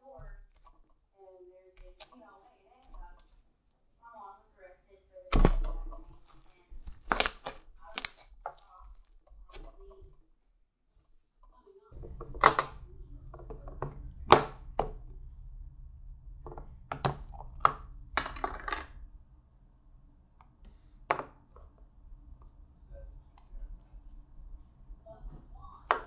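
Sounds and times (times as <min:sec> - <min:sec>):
low steady hum: 0:11.6 - 0:26.0.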